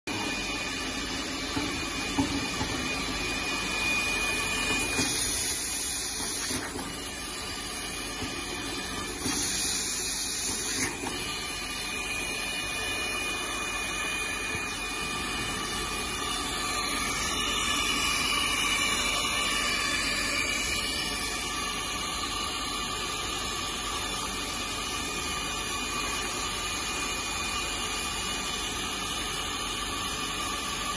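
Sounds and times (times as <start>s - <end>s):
machine hum: 0.1s - 30.9s
hot air hissing from nozzle: 9.1s - 11.2s.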